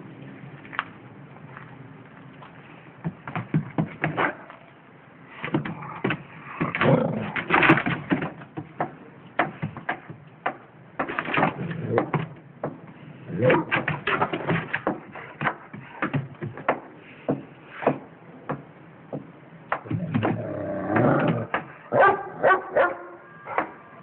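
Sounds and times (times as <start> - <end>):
dog barking muffled: 21.8 - 23.9.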